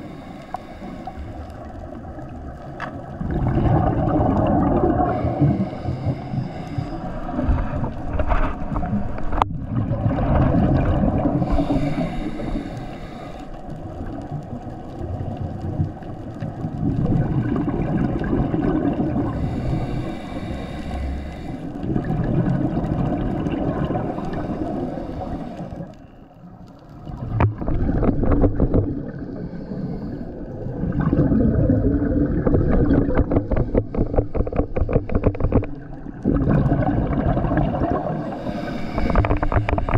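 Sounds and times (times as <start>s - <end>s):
regulator hissing inhalations: 0.0s - 1.6s, 11.4s - 13.6s, 19.4s - 21.8s, 24.1s - 25.9s, 38.3s - 39.9s
gurgling exhaust bubbles: 3.1s - 5.6s, 8.8s - 11.9s, 16.6s - 20.1s, 21.8s - 24.5s, 30.6s - 39.9s.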